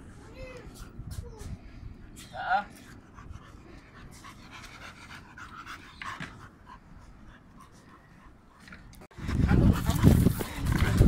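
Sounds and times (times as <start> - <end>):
dog panting: 2.7 - 11.0.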